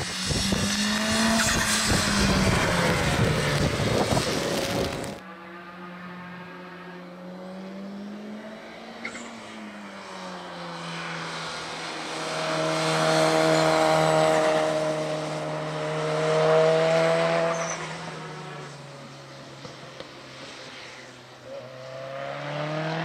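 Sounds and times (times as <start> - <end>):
car engine under load: 0.0 - 5.2.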